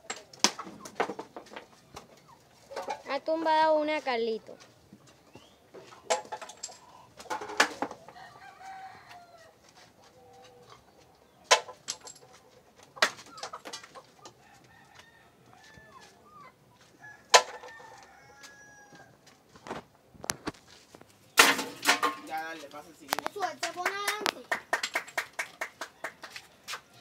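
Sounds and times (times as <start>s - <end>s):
chickens clucking: 0.0s - 27.0s.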